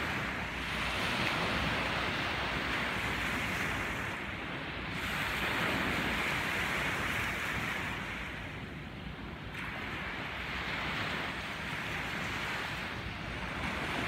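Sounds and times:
small waves breaking on shore: 0:00.0 - 0:14.0
wind rumbling on microphone: 0:00.0 - 0:14.0.

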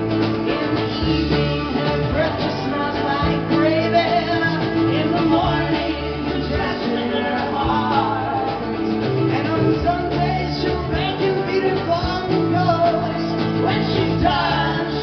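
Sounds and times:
folk-rock band playing: 0:00.0 - 0:15.0
person singing: 0:00.0 - 0:15.0.

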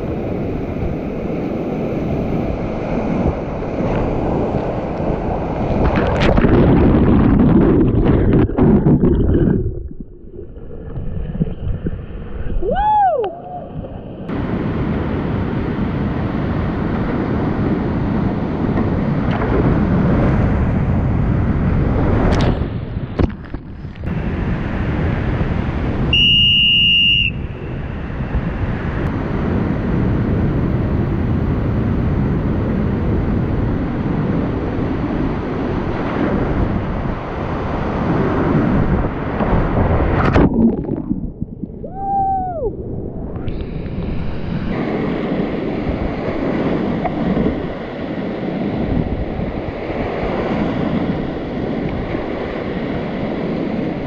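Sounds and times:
wind buffeting microphone: 0:00.0 - 0:54.0.

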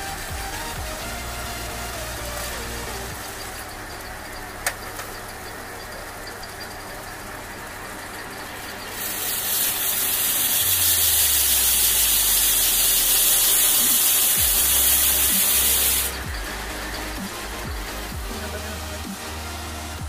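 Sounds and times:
pressurized gas hissing from nozzle: 0:08.9 - 0:19.0.

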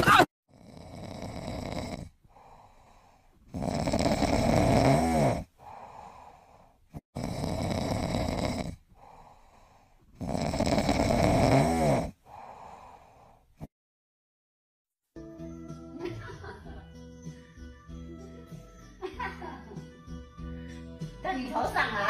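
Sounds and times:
loud snoring: 0:00.5 - 0:13.7.

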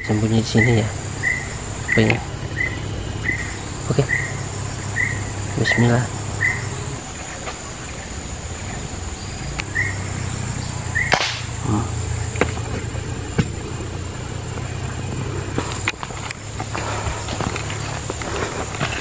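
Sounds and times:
high insect drone: 0:00.0 - 0:19.0
air rifle shot: 0:11.0 - 0:11.6.

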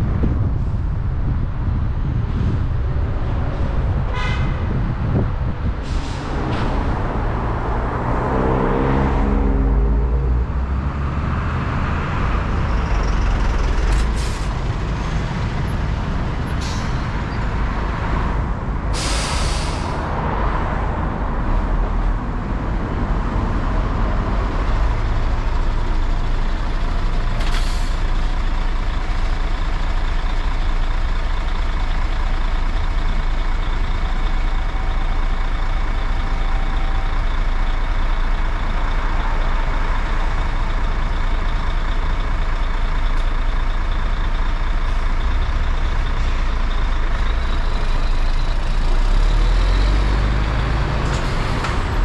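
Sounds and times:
passing engine: 0:00.0 - 0:52.0
road and engine rumble: 0:00.0 - 0:52.0
short sharp hisses: 0:19.0 - 0:20.0.

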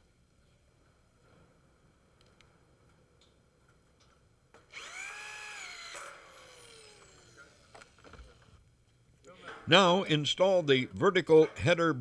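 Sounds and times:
cordless drill motor whine: 0:04.7 - 0:08.6.

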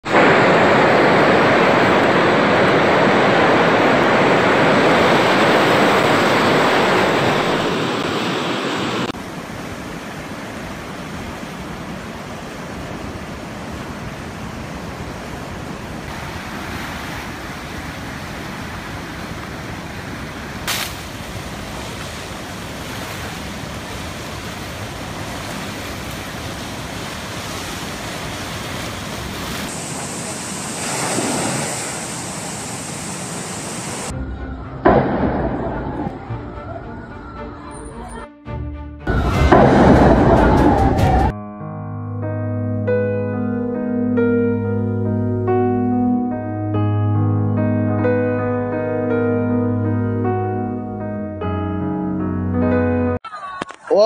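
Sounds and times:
floodwater rushing: 0:00.0 - 0:34.2.

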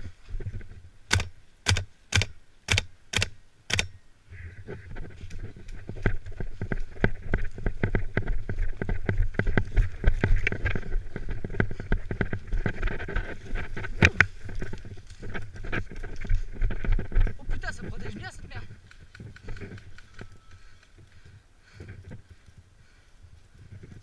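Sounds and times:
sharp crack: 0:01.1 - 0:04.0.

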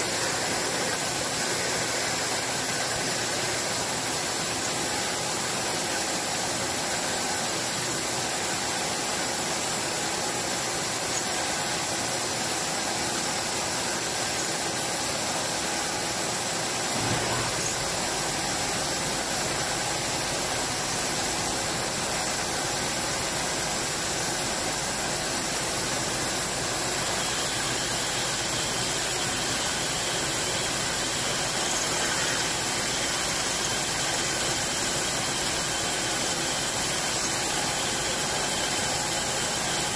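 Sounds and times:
hiss of coolant mist spraying: 0:15.4 - 0:39.9
milling machine drilling: 0:16.7 - 0:20.8.

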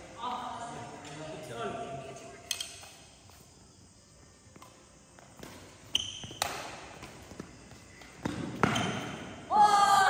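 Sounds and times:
badminton racket hitting shuttlecock: 0:05.4 - 0:07.2.

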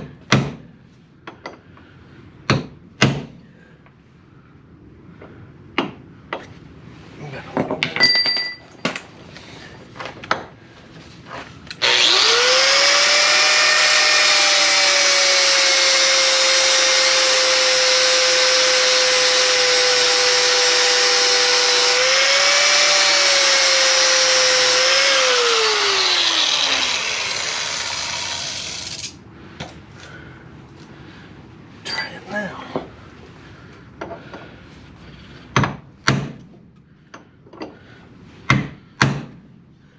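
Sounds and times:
metal clinks: 0:07.9 - 0:09.0
angle grinder grinding metal: 0:11.7 - 0:29.2
grinder whine winding down: 0:11.8 - 0:29.2.

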